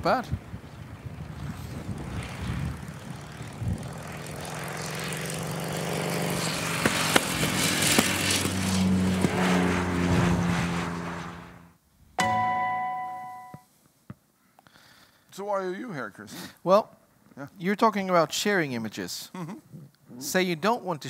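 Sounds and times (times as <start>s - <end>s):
motorcycle engine approaching: 0.6s - 11.7s
short bright ringing chime: 12.2s - 13.6s.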